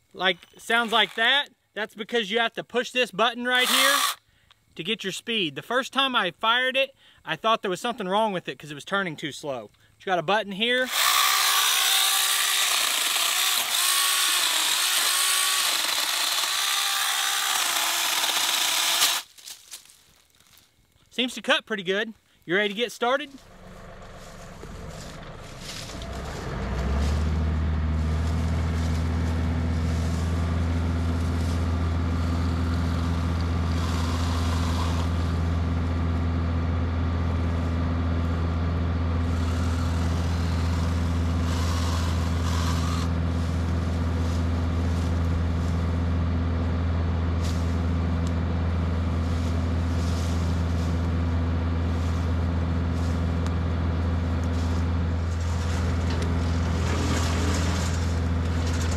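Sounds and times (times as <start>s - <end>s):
cordless chainsaw rasping: 0.6s - 1.3s, 3.6s - 4.2s, 10.9s - 19.3s, 23.4s - 35.8s, 39.2s - 45.7s, 54.6s - 58.9s
wood chipper: 3.6s - 4.2s, 10.9s - 19.8s, 23.4s - 58.9s
tractor diesel engine droning: 23.3s - 58.9s.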